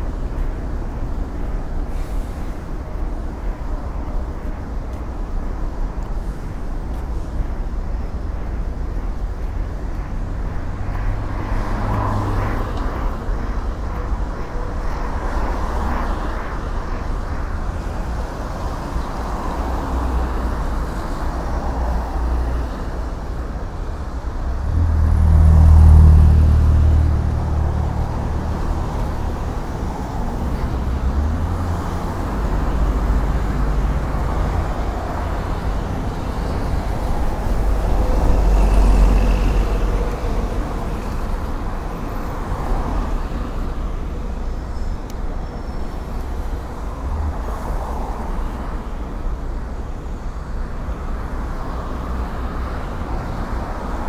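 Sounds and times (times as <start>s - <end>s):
road traffic: 0.0s - 54.0s
vehicle passing with deep rumble: 24.4s - 41.6s.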